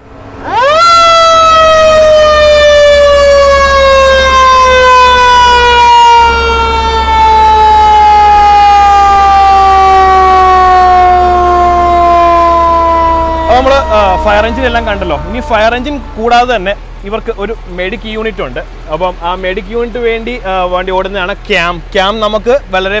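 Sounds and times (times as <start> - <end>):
fire engine siren: 0.0 - 18.0.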